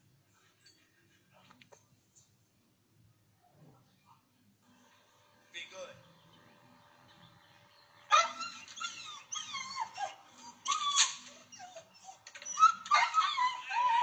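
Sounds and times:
dog whining and yelping: 8.1 - 14.0.

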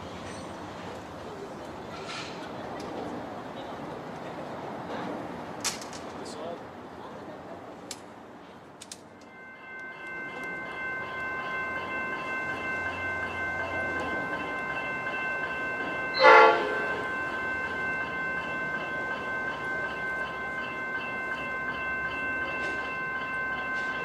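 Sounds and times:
approaching freight train: 0.0 - 24.0
level crossing bells ringing: 9.2 - 24.0
train horn blast: 16.2 - 17.0.

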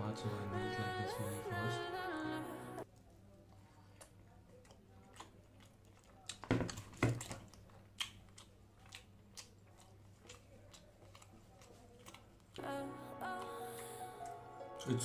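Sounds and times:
person chewing food: 2.8 - 12.7.

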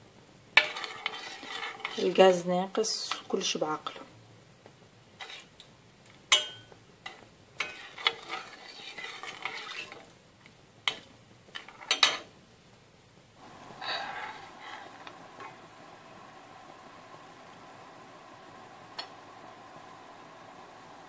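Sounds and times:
spoon scraping saucepan: 0.6 - 2.2, 5.2 - 5.5, 7.1 - 10.1
spoon clinking against saucepan: 6.3 - 6.8.

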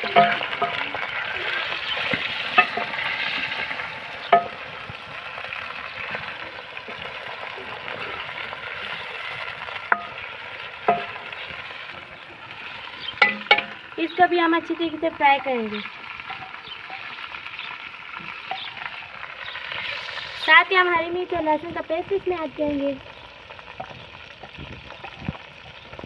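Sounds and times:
chicken sizzling in hot oil: 0.0 - 26.0
wooden spoon knocking on pot: 9.8 - 11.3, 13.2 - 13.8.

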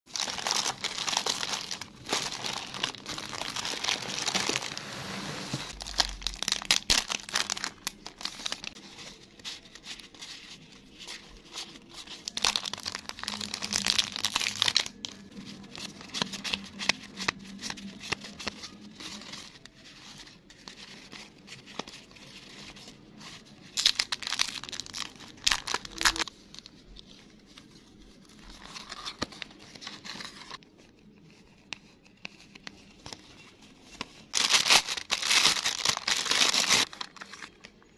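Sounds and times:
plastic packaging crinkling: 0.1 - 31.2, 32.5 - 37.9.

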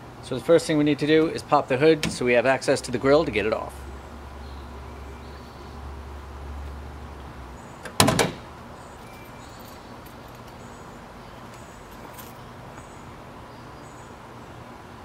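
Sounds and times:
car hood latch clunks: 2.0 - 2.3, 7.8 - 8.5.

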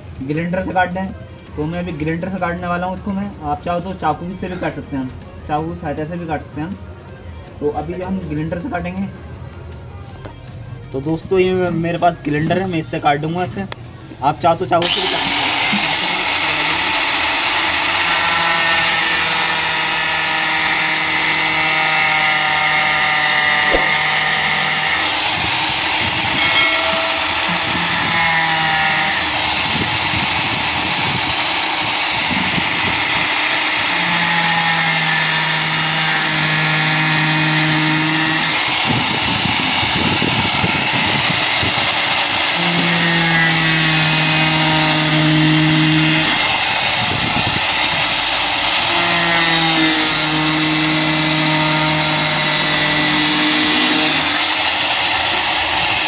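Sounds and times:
angle grinder cutting plastic: 14.8 - 56.0.

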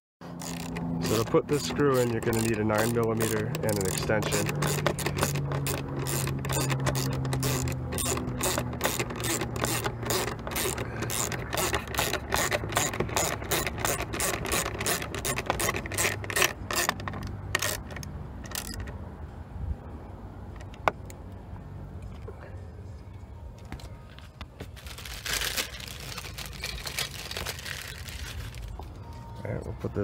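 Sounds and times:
ratchet wrench clicking: 0.4 - 18.9.

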